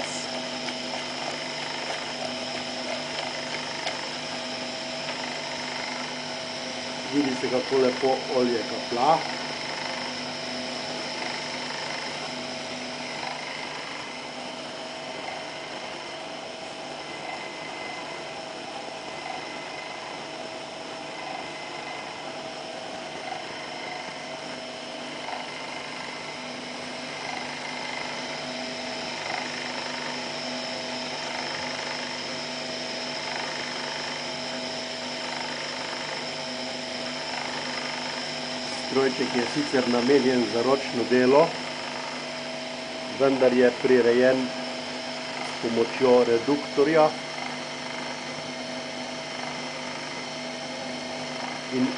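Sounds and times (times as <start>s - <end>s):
electric motor running: 0.0s - 51.9s.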